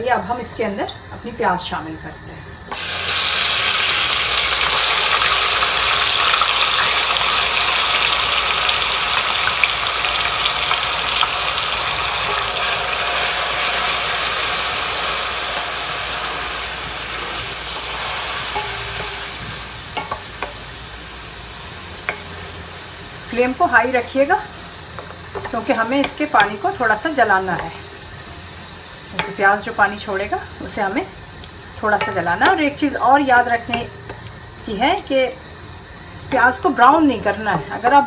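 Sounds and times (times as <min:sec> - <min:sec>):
onion sizzling in hot oil: 0:00.0 - 0:38.0
spatula scraping a pan: 0:17.2 - 0:20.6.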